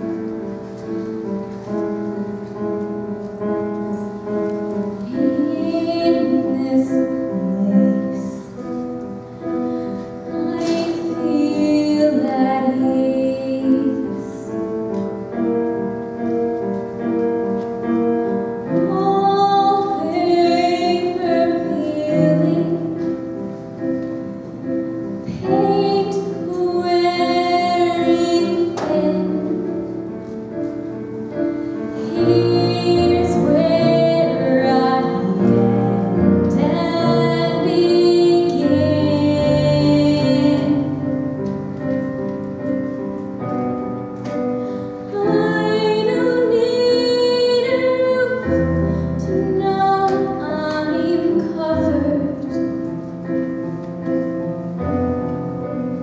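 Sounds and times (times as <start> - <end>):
digital piano chords: 0.0 - 56.0
girl singing a ballad: 4.8 - 8.8, 9.7 - 14.7, 18.6 - 23.6, 25.3 - 30.1, 31.6 - 41.6, 44.5 - 52.9.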